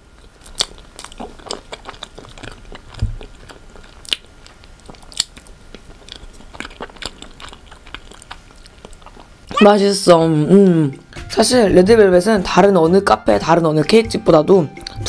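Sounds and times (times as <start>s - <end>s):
close chewing: 0.0s - 9.5s.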